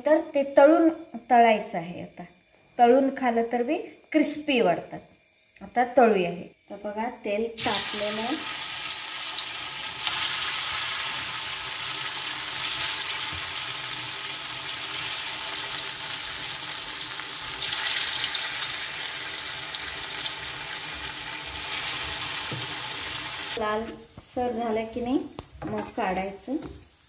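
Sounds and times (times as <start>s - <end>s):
food deep-frying in sizzling oil: 7.6s - 23.6s.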